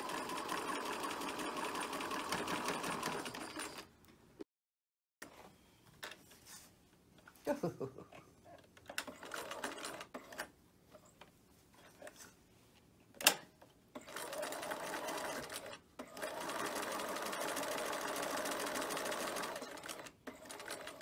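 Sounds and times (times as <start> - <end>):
sewing machine stitching: 0.0 - 3.9, 8.9 - 10.5, 14.0 - 21.0.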